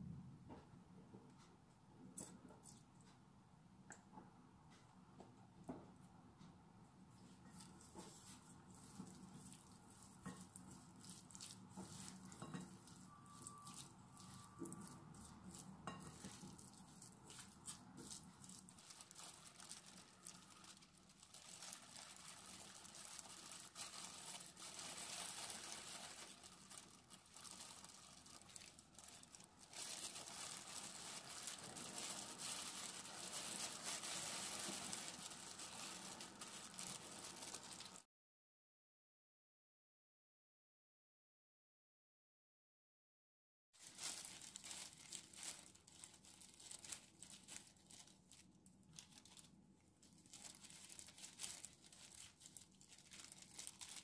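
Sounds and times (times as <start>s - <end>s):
plastic gloves crinkling: 7.1s - 38.1s, 43.8s - 54.0s
spoons stirring rice in glass bowl: 7.3s - 18.6s.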